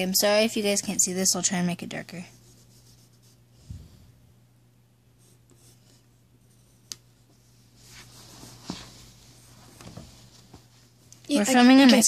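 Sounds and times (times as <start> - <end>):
pen scratching on paper: 5.2 - 6.9.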